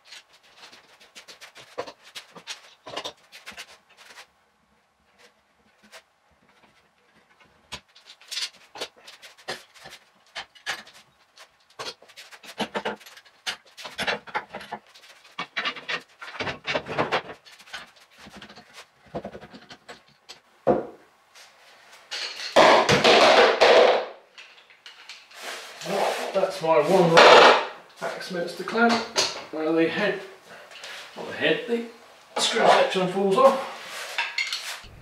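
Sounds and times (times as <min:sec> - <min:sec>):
rustling scrape: 0:00.0 - 0:04.4, 0:24.9 - 0:27.2, 0:32.4 - 0:35.0
clamps knocking and clattering: 0:11.8 - 0:21.0.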